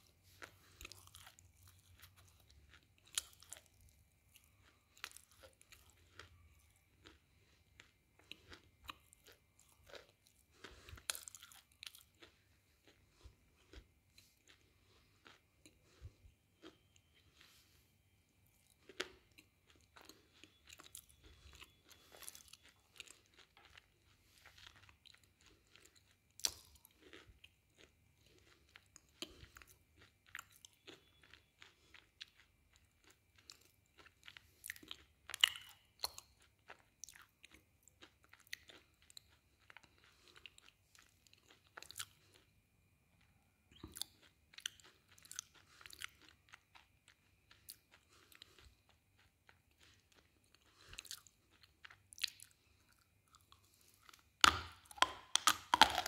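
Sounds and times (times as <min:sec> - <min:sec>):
quiet chewing: 0:00.0 - 0:56.0
crisp crunching bites: 0:54.4 - 0:56.0.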